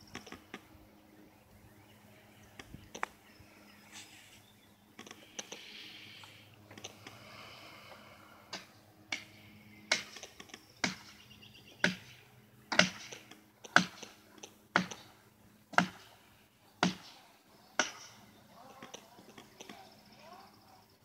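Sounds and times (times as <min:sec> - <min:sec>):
hammer striking a wedge: 0:12.7 - 0:13.1, 0:15.8 - 0:16.0.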